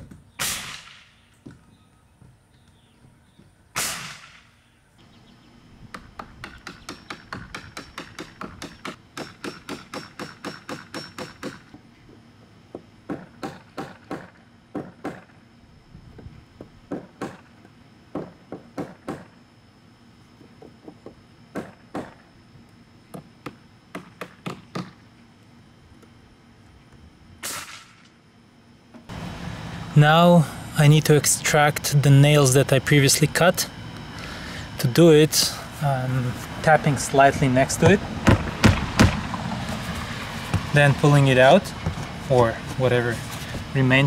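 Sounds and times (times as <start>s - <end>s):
pneumatic nailer firing: 0.0s - 1.2s, 3.8s - 4.6s, 13.1s - 15.4s, 21.5s - 22.2s, 27.4s - 28.2s, 38.2s - 39.3s.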